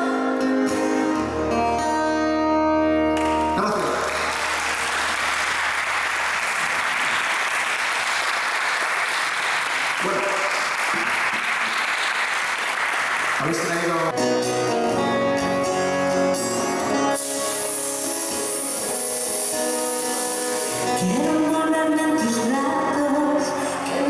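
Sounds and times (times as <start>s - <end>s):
music with held notes: 0.0s - 5.6s, 14.1s - 24.0s
audience applauding: 3.2s - 14.2s.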